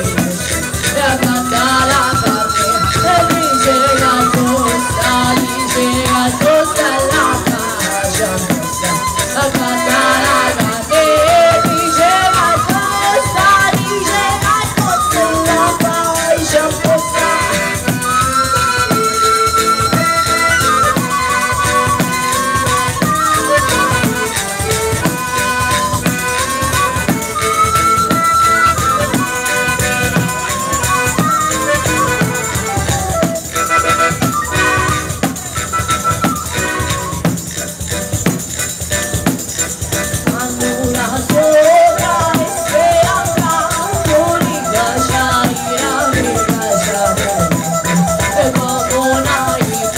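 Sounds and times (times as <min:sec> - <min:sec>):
woman singing: 0:00.0 - 0:19.3, 0:22.1 - 0:25.1, 0:40.2 - 0:49.9
accordion: 0:00.0 - 0:49.9
acoustic guitar: 0:00.0 - 0:49.9
frame drum with jingles: 0:00.0 - 0:49.9
small rattling percussion: 0:00.0 - 0:49.9
wandering melody line: 0:00.0 - 0:49.9.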